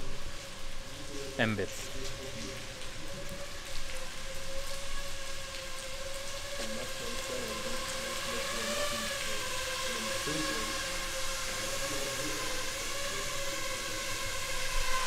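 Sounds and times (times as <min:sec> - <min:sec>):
even hiss: 0:00.0 - 0:02.6, 0:05.3 - 0:15.0
drone propellers whining: 0:03.4 - 0:15.0.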